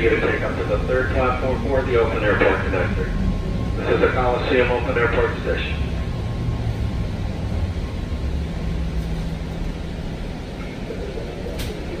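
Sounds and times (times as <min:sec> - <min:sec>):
train rumble from inside car: 0:00.0 - 0:12.0.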